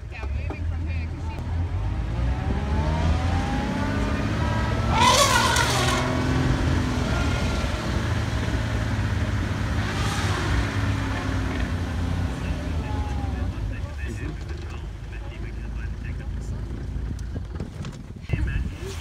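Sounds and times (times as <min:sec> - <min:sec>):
vehicle engine humming: 0:00.0 - 0:18.5
loud high call: 0:04.9 - 0:07.9.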